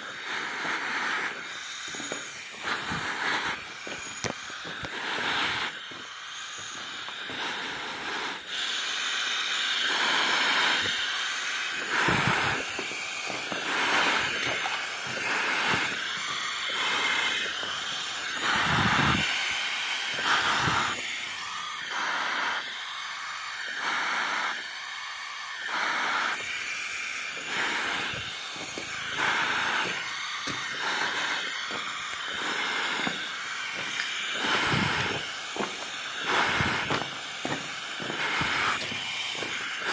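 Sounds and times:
steady hiss: 0:00.0 - 0:39.9
footsteps walking: 0:00.1 - 0:08.1, 0:11.6 - 0:19.3, 0:27.4 - 0:39.9.

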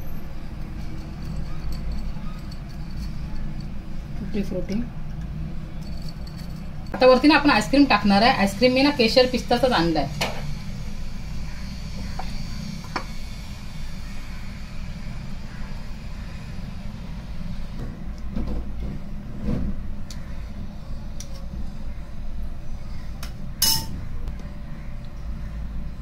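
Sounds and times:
steady low hum: 0:00.0 - 0:26.0
sharp clink: 0:23.6 - 0:24.0.

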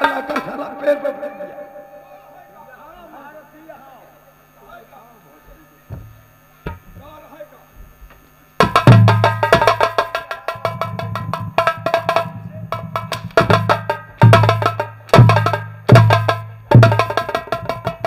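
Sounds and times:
steady low tone: 0:00.0 - 0:04.6.

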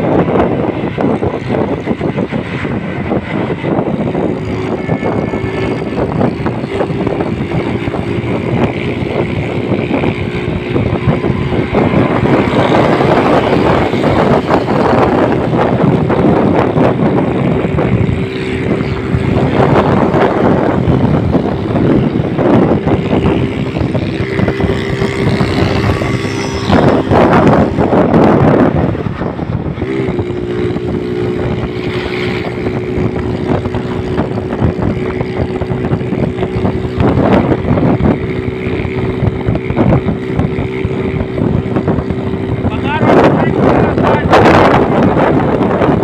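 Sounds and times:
auto-rickshaw engine running: 0:00.0 - 0:46.0
wind buffeting microphone: 0:00.0 - 0:46.0.

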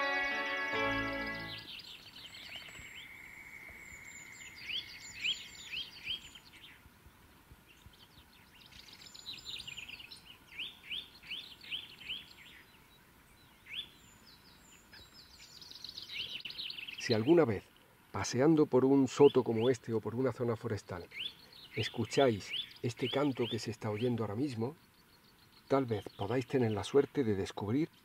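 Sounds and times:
bird singing whistled notes: 0:00.8 - 0:06.8, 0:07.8 - 0:17.4, 0:21.1 - 0:26.8.

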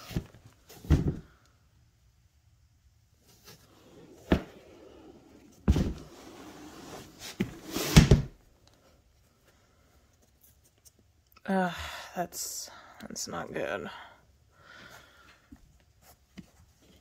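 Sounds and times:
scrape: 0:04.9 - 0:08.1.

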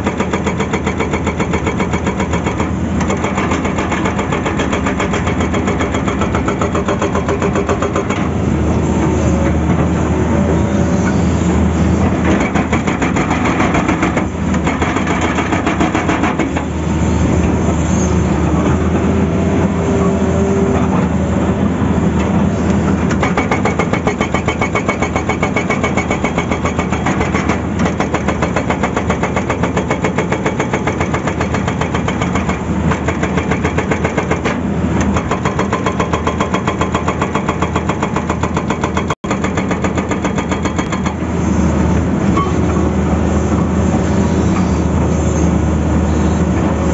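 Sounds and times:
hydraulic rock breaker pounding: 0:00.0 - 0:08.4, 0:12.0 - 0:16.8, 0:23.0 - 0:41.3
diesel engine under load: 0:00.0 - 0:37.8, 0:38.4 - 0:46.9.

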